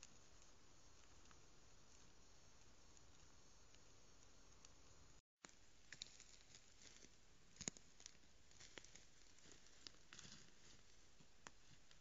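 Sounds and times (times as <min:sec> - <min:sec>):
steady hiss: 0:00.0 - 0:06.0
faint clicks and ticks: 0:00.0 - 0:06.1.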